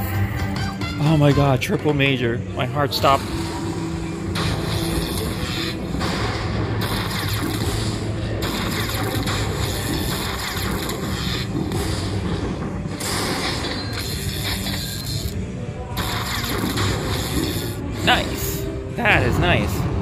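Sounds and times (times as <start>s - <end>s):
slot machine game music: 0.0s - 20.0s.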